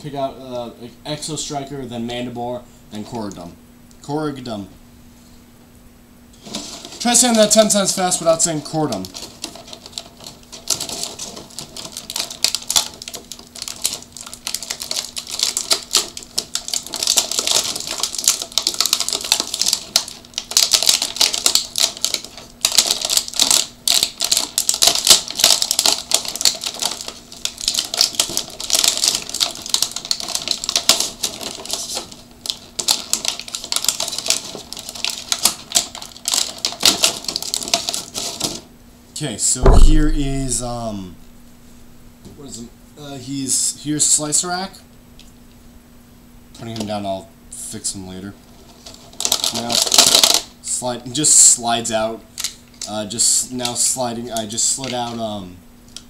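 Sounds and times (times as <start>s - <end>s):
plastic packaging crinkling: 6.4s - 38.7s, 48.4s - 55.3s
toy figures popping out: 39.6s - 40.8s.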